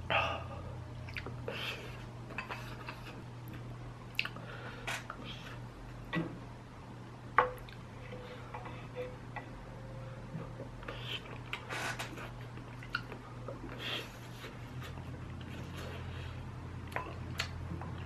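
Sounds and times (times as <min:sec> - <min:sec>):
chewing: 0:01.0 - 0:01.4, 0:02.4 - 0:04.4, 0:12.2 - 0:13.9, 0:16.8 - 0:18.0.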